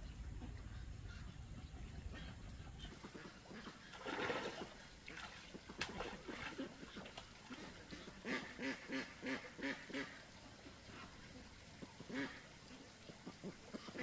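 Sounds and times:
ducks quacking: 0:00.0 - 0:14.0.

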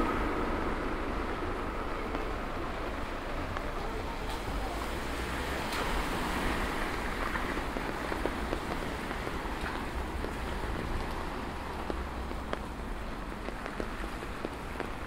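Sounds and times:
steady rain on street: 0:00.0 - 0:15.0
drops ticking close by: 0:06.9 - 0:15.0.

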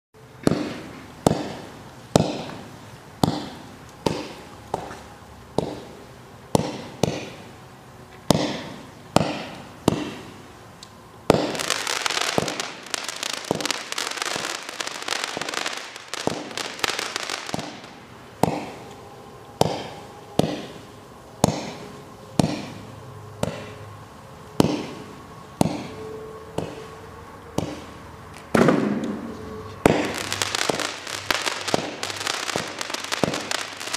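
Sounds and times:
fireworks reports: 0:11.2 - 0:18.8, 0:27.6 - 0:33.9
fireworks crackling: 0:11.2 - 0:19.0, 0:27.6 - 0:33.9.

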